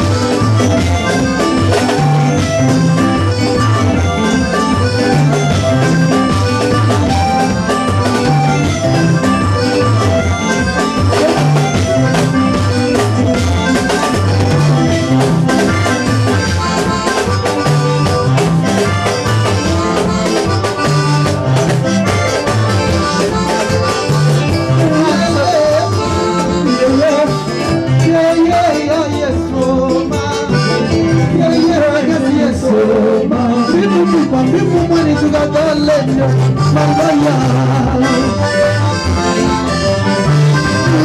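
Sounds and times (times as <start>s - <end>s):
live band playing dance music: 0.0s - 41.0s.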